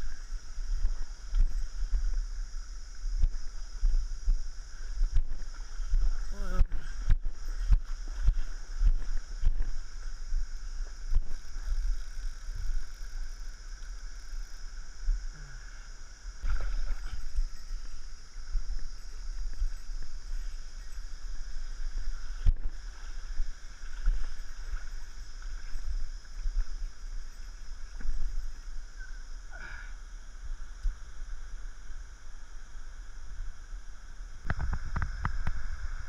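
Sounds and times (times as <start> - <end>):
stream running over stones: 16.0 - 28.9, 30.3 - 36.0
camera jostling rumble: 34.4 - 35.8.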